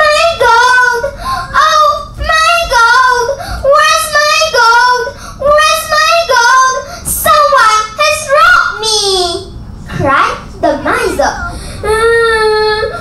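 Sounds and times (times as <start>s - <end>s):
boy wailing and sobbing: 11.4s - 13.0s.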